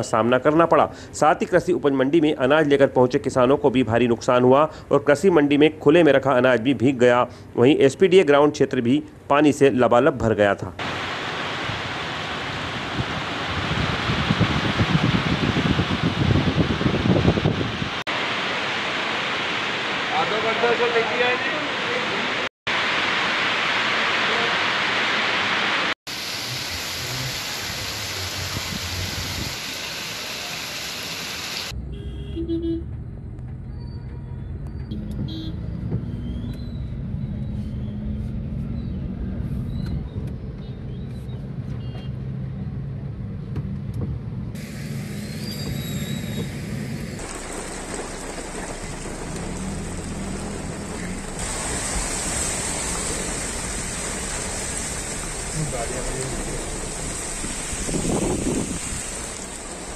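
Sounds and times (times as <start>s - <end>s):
heavy rain hissing: 10.8s - 31.7s, 44.6s - 59.9s
car horn toots: 31.8s - 33.0s, 34.9s - 35.6s
car driving through water: 47.1s - 59.9s.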